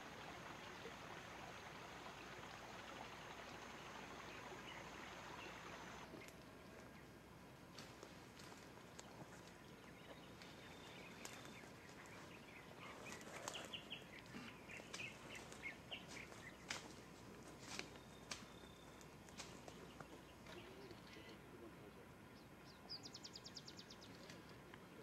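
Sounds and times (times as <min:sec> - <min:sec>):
faint forest ambience: 0:00.0 - 0:25.0
bird chirping: 0:09.0 - 0:24.6.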